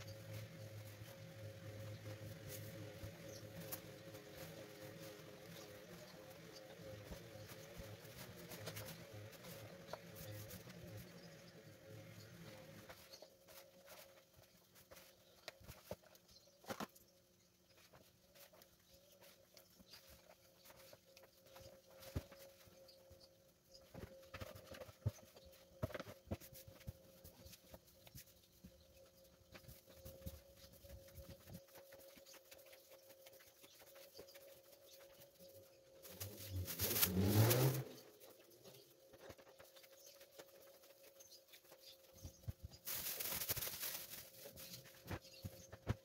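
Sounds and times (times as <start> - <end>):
hands kneading pastry dough: 0.0 - 46.0
plastic bag crinkling: 36.0 - 37.8, 42.7 - 45.2.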